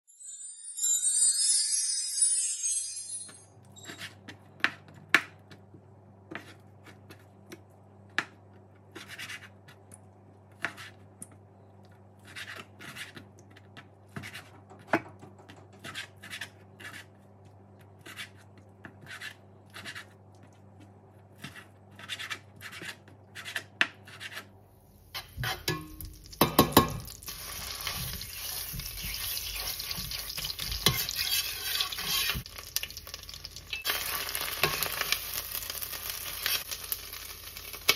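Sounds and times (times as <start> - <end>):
meat sizzling in a pot: 25.2 - 37.9
metal spoon knocking a pot: 25.4 - 27.1.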